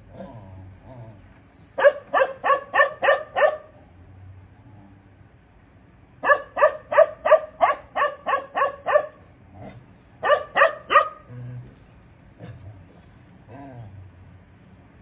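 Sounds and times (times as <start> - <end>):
dog barking: 1.8 - 3.8, 6.2 - 9.2, 10.2 - 11.3.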